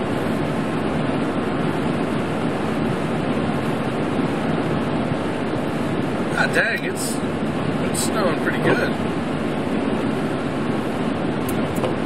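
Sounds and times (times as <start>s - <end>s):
defroster fan blowing: 0.0s - 12.0s.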